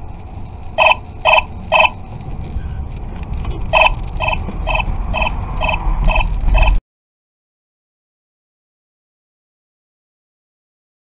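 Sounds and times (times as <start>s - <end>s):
car engine and tyres rumble: 0.0s - 6.8s
short electronic beeps: 0.8s - 2.0s, 3.6s - 6.8s.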